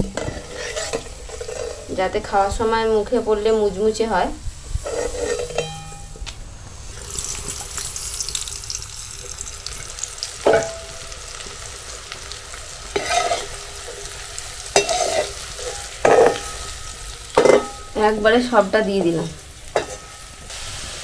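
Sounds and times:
spoon knocking and scraping wok: 0:00.0 - 0:01.9, 0:04.8 - 0:06.3, 0:10.4 - 0:11.2, 0:12.9 - 0:14.0, 0:14.6 - 0:18.0, 0:19.0 - 0:20.2
corn sizzling in oil: 0:00.0 - 0:21.0.

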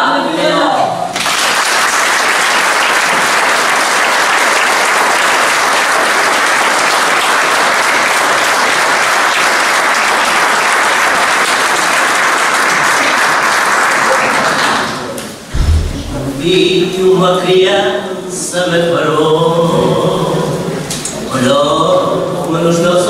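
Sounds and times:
audience applauding: 0:01.1 - 0:15.1.

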